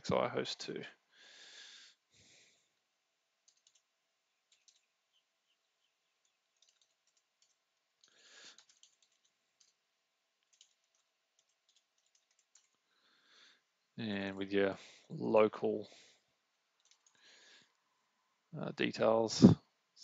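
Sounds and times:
soft keyboard clicks: 3.4 - 3.9, 4.5 - 4.9, 6.2 - 9.8, 10.4 - 12.8, 16.8 - 17.2.

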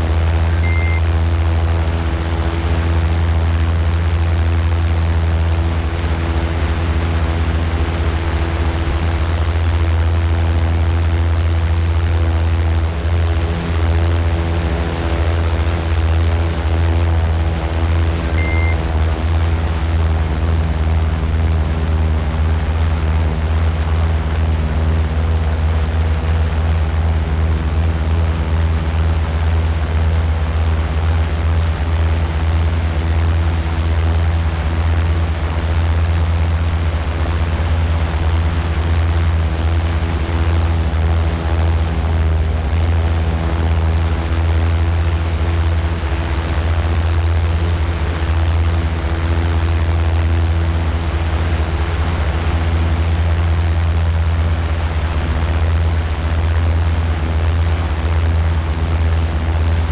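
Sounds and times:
drone motors humming: 0.0 - 59.9
short high beep: 0.4 - 1.1, 18.3 - 18.8.

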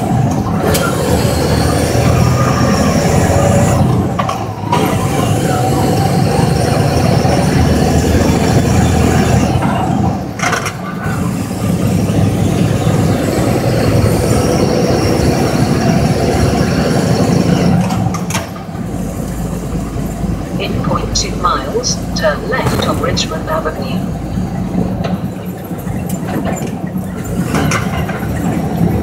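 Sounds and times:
truck diesel engine driving: 0.0 - 29.0.

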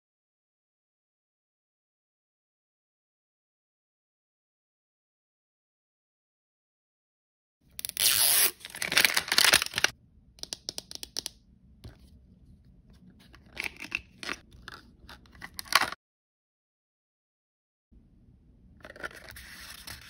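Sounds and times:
plastic wrapping tearing: 7.8 - 9.9
plastic crinkles and clicks: 8.6 - 11.3.

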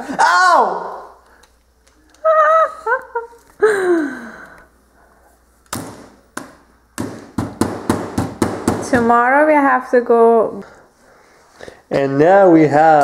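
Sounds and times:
high voice exclaiming: 0.1 - 1.1
carving tool jabbing pumpkin: 5.7 - 9.0.

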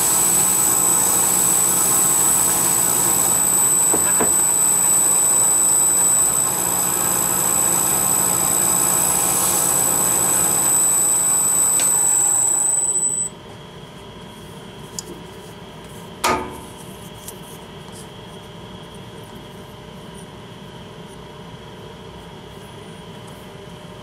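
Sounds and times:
wood lathe whining: 0.0 - 13.3.

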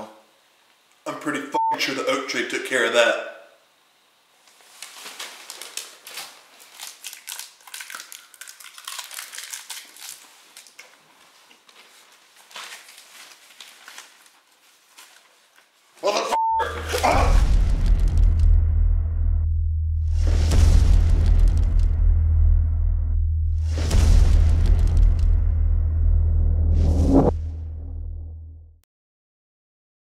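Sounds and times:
short beep: 1.6 - 1.8, 16.4 - 17.3
newspaper pages rustling: 4.5 - 16.0
loud booming with deep bass: 16.6 - 28.6.

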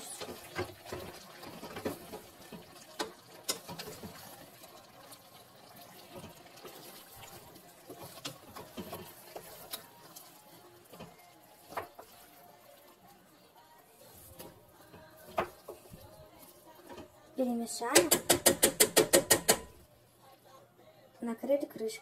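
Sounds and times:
wooden spatula stirring potatoes: 0.0 - 19.2
clicks and knocks on metal pot: 17.9 - 19.8.

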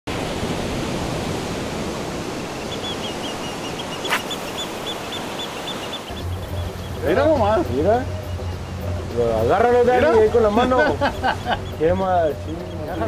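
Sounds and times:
wind and water rushing: 0.0 - 13.0
faint high chirping: 2.4 - 7.2.

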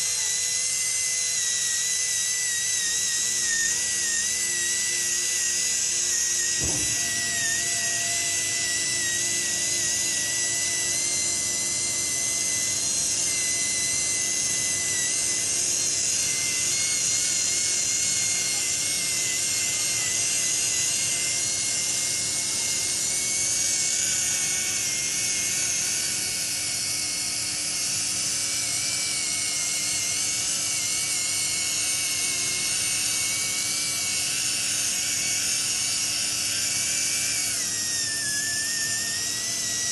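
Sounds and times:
polishing tool high-pitched whine: 0.0 - 39.9
low thump: 6.6 - 7.1.

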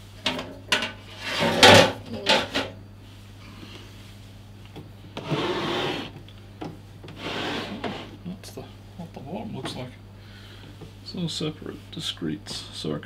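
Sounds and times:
device scraping on table: 1.1 - 1.8, 5.2 - 6.2, 7.1 - 8.2.

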